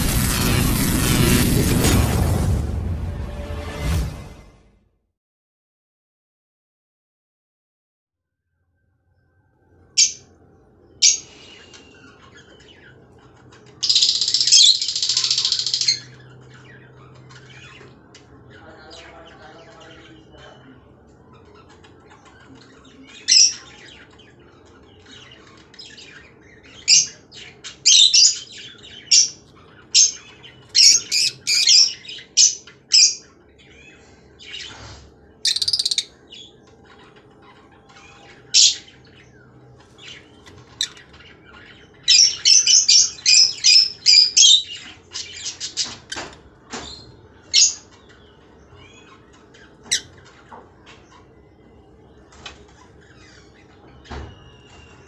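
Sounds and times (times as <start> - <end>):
lovebirds squawking: 10.9 - 55.0.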